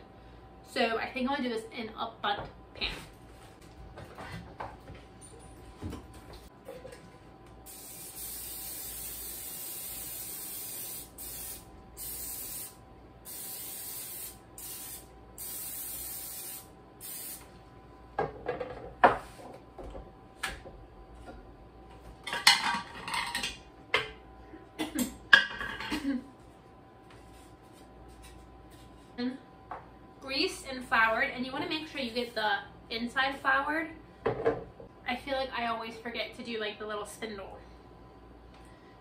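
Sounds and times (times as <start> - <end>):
aerosol spray hissing: 7.7 - 17.5.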